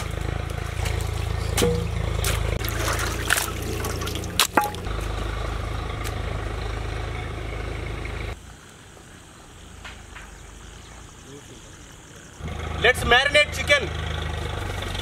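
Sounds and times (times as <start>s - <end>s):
water sloshing and trickling: 0.0s - 5.3s
steady low rumble: 0.0s - 8.5s.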